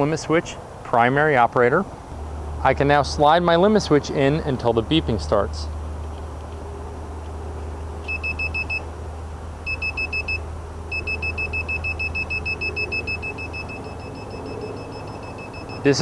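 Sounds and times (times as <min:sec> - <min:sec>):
rapid high-pitched beeping: 0:08.1 - 0:08.8, 0:09.7 - 0:16.0.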